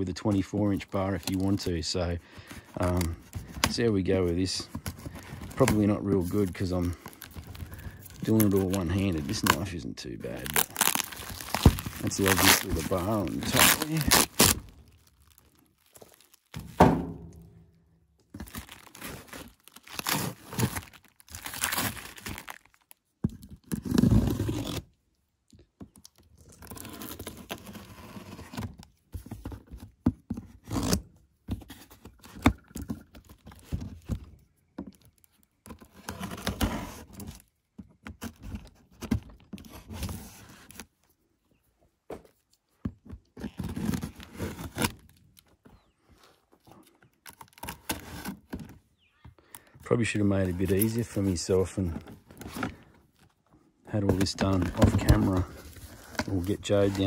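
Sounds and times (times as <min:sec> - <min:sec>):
cardboard scraping and tearing: 0:00.3 - 0:16.9, 0:18.3 - 0:25.0, 0:26.4 - 0:34.4, 0:35.6 - 0:40.9, 0:43.4 - 0:45.2, 0:47.2 - 0:48.8, 0:50.0 - 0:53.0, 0:53.9 - 0:57.0
knife cutting cardboard box: 0:10.3 - 0:14.7, 0:18.5 - 0:22.4, 0:23.6 - 0:24.9, 0:26.6 - 0:32.9, 0:35.6 - 0:37.4, 0:43.4 - 0:45.1, 0:47.4 - 0:48.7, 0:54.0 - 0:57.0.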